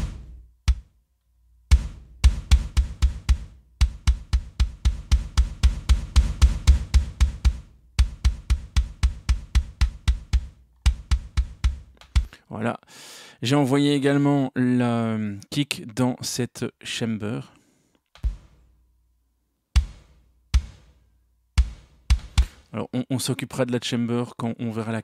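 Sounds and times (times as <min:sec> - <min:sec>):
rapid kick drum strokes: 0:00.0 - 0:01.0, 0:01.6 - 0:12.4, 0:18.2 - 0:18.7, 0:19.8 - 0:21.0, 0:21.6 - 0:22.8.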